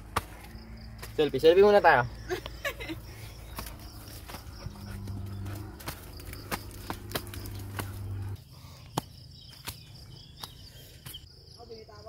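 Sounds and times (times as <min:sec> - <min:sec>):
insects buzzing: 0:00.0 - 0:12.0
footsteps on rocky path: 0:03.3 - 0:11.2.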